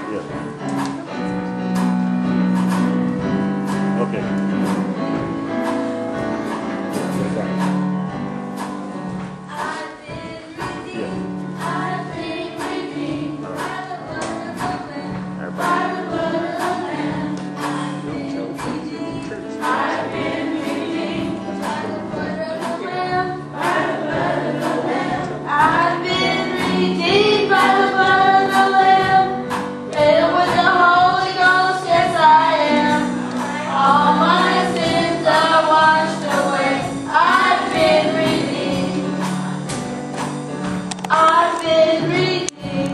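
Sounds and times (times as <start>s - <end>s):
instrumental accompaniment with beat: 0.0s - 42.9s
children's choir singing: 9.4s - 40.3s, 41.0s - 42.9s.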